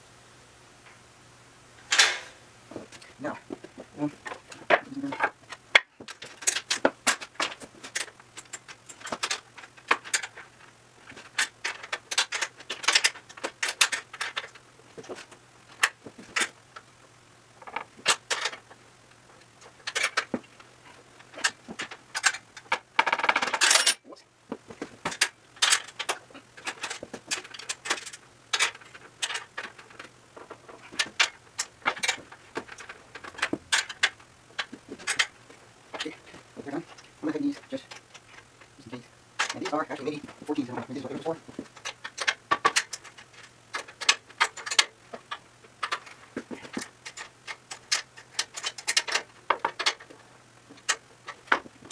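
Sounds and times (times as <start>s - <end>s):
bolts and wrench clinking on steel: 21.3s - 24.0s, 25.1s - 35.3s, 41.6s - 50.2s.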